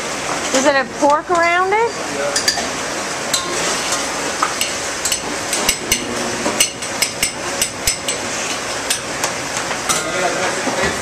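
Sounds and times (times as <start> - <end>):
kitchen background noise: 0.1 - 11.0
metal pans and utensils clanking: 3.3 - 11.0.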